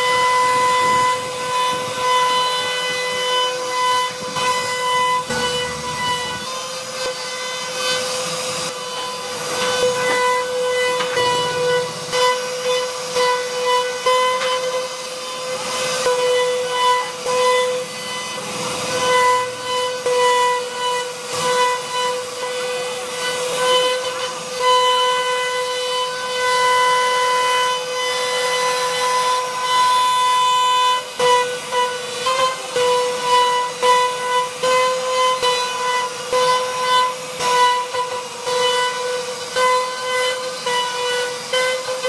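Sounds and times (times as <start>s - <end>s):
bit rasping through wood: 0.0s - 26.8s
router spindle whining: 0.0s - 42.0s.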